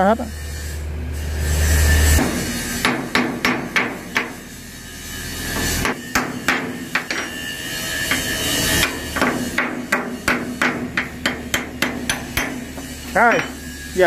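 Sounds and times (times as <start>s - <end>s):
hammer striking steel: 2.1s - 4.5s, 5.4s - 14.0s.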